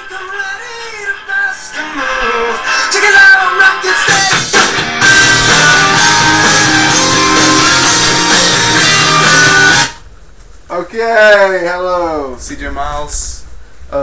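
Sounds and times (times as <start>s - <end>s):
rock music with drums and guitar: 2.7s - 10.0s.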